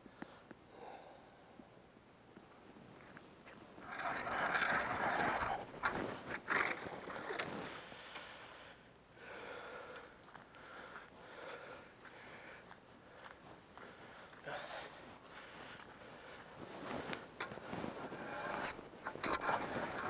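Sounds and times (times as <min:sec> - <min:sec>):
footsteps on snow over ice: 0:10.2 - 0:20.0
gear handling and rustling: 0:16.4 - 0:20.0.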